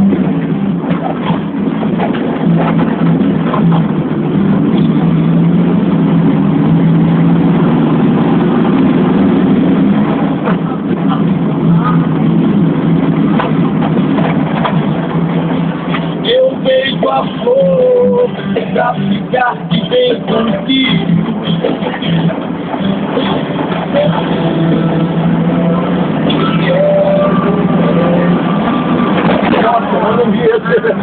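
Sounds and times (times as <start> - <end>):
road noise: 0.0 - 31.0
van engine running: 0.0 - 31.0
knocks and rattles: 0.1 - 5.2, 12.9 - 16.2, 29.0 - 30.2.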